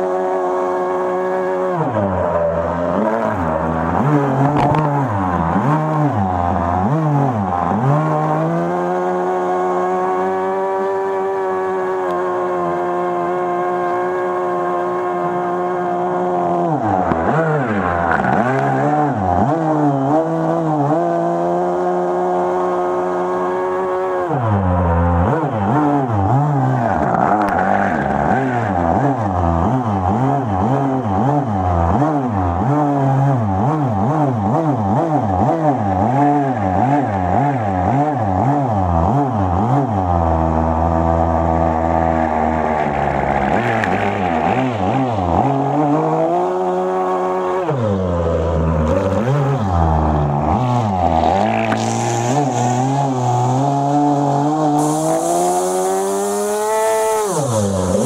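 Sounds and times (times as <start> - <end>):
model engine with wavering pitch: 40.5 - 46.4, 47.1 - 58.0.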